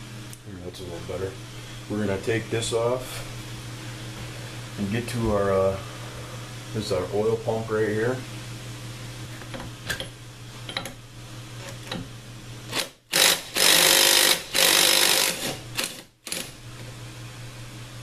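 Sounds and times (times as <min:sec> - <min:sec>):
impact driver hammering: 0:13.1 - 0:16.0.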